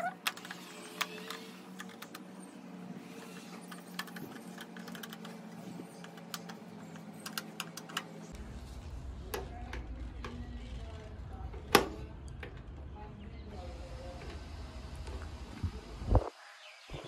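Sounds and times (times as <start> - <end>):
screwdriver clicks and ticks: 6.0 - 8.1.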